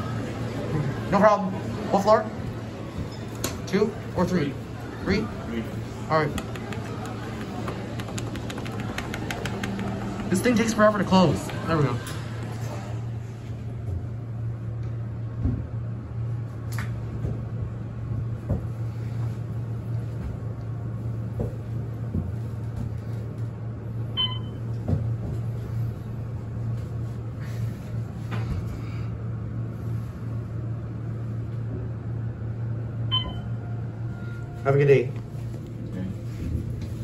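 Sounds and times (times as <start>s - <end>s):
elevator drive humming: 0.0s - 37.0s
elevator chime: 33.1s - 34.8s.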